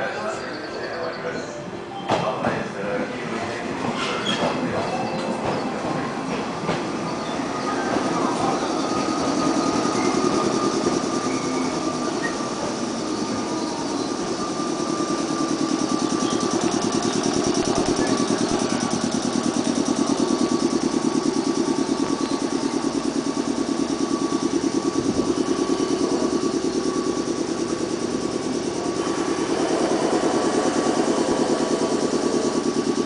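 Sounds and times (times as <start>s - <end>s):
train machinery whine: 0.0s - 33.0s
fast even pulsing: 7.4s - 33.0s.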